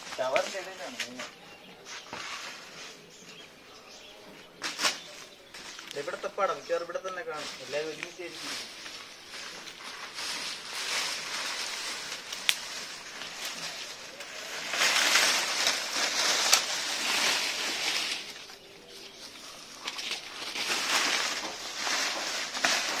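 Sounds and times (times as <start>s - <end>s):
dry leaves crackling and rustling: 0.0s - 3.2s, 4.6s - 23.0s
leaves snapping: 7.0s - 18.7s, 19.3s - 23.0s.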